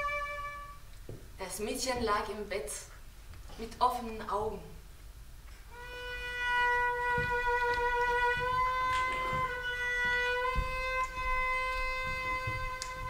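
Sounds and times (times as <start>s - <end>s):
cello bowed note: 0.0s - 0.8s, 5.7s - 13.0s
soft knocks: 7.0s - 13.0s.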